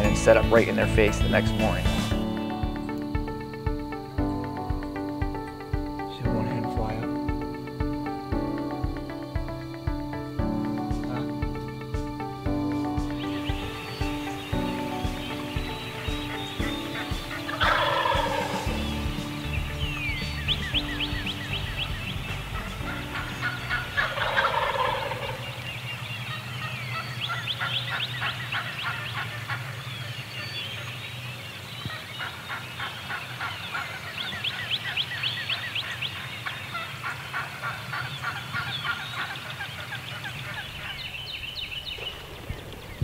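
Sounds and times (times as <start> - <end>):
turkeys gobbling: 13.1 - 30.9, 31.9 - 43.0.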